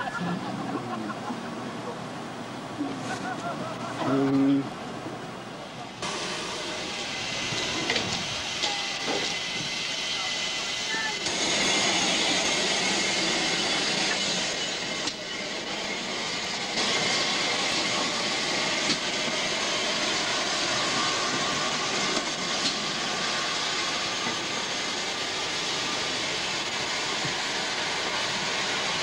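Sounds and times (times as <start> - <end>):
steam hissing: 6.0 - 29.0.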